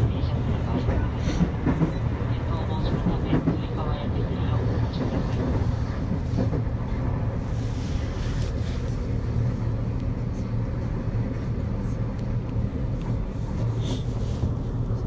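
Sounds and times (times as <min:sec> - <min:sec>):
train interior hum: 0:00.0 - 0:15.0
train rolling noise: 0:00.0 - 0:15.0.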